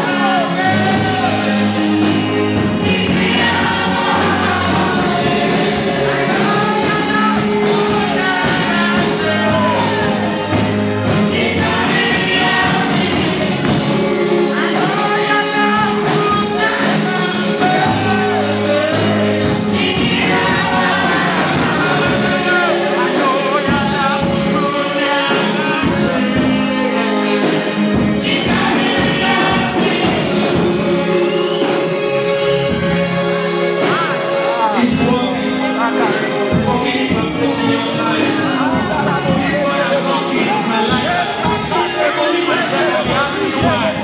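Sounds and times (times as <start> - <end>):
gospel voices singing over beat: 0.0 - 44.0.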